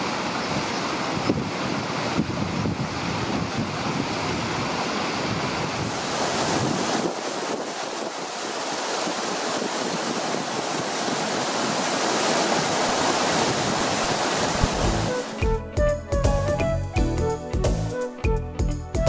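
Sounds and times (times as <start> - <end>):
river rushing over rocks: 0.0 - 15.5
wind rumble on microphone: 0.4 - 15.1.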